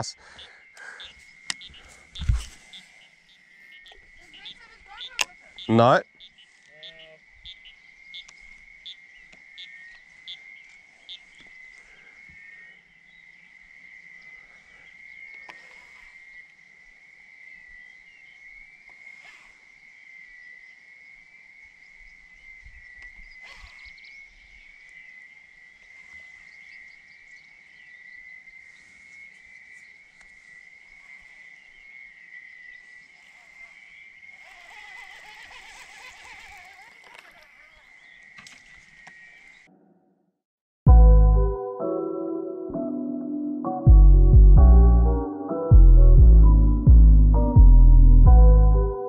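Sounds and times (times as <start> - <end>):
frogs trilling: 0.0 - 39.7
faint clicks: 36.6 - 37.6.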